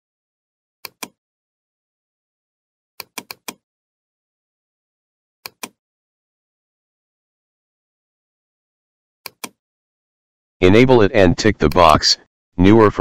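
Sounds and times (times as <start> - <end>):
computer mouse clicks: 0.8 - 1.2, 3.0 - 3.6, 5.5 - 5.8, 9.3 - 9.6.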